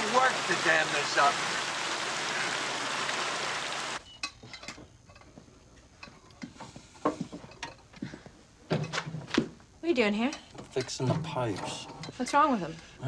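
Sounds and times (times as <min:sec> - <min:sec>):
water rushing: 0:00.0 - 0:04.0
tools clinking on pipes: 0:04.1 - 0:06.5, 0:07.4 - 0:07.9.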